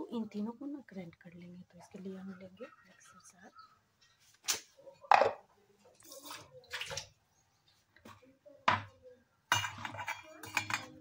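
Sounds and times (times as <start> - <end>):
steel kitchenware knocks and scrapes: 9.5 - 11.0.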